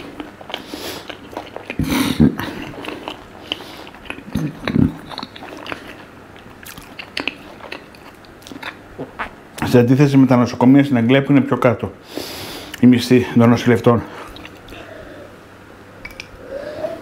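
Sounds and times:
person biting and chewing food: 0.0 - 9.4.

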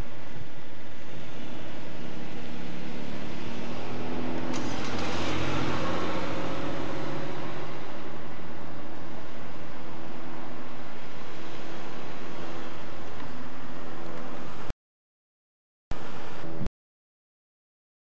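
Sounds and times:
vehicle engine hum: 0.0 - 14.7, 16.0 - 16.7.

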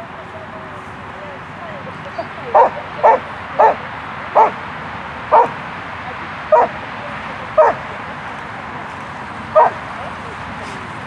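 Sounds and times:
dog barking: 2.5 - 4.6, 5.3 - 5.6, 6.5 - 6.8, 7.6 - 7.8, 9.6 - 9.8.

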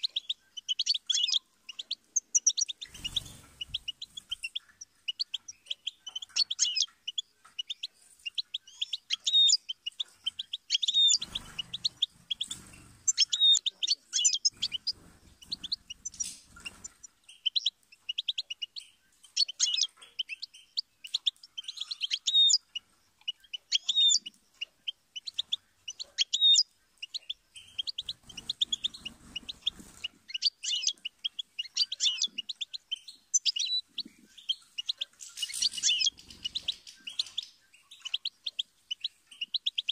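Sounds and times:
bird twittering: 0.0 - 39.9.

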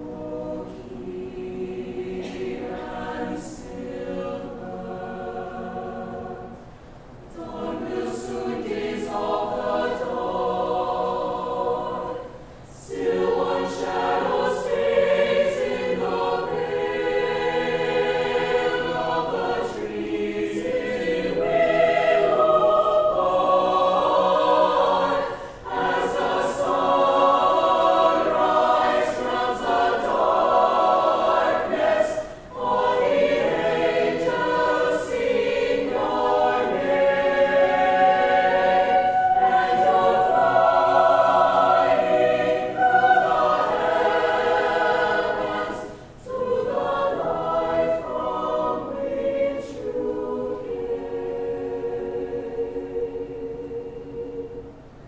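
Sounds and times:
mixed choir singing: 0.0 - 55.0.

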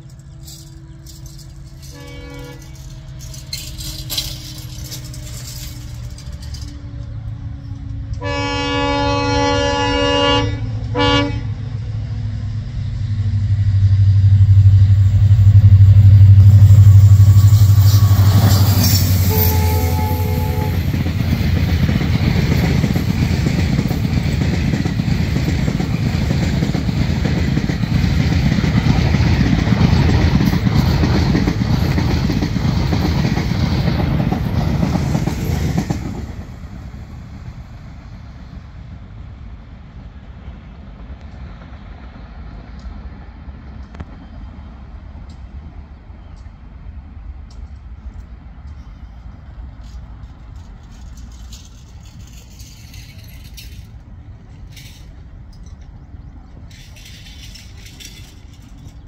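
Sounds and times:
train horn: 0.0 - 11.9, 14.0 - 21.3
locomotive engine drone: 0.0 - 59.0
wheels rumbling on rail: 0.0 - 59.0.

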